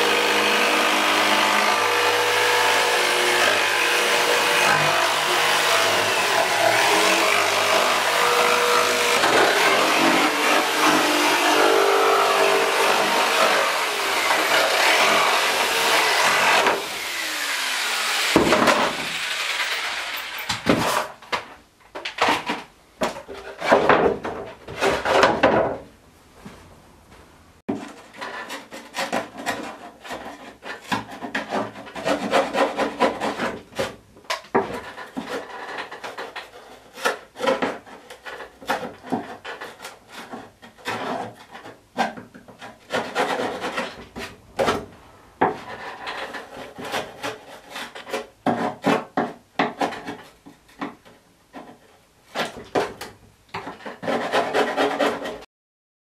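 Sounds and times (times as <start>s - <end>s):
jigsaw winding down: 12.5s - 20.5s
knife blade scraping plywood: 27.7s - 50.9s, 51.5s - 55.4s.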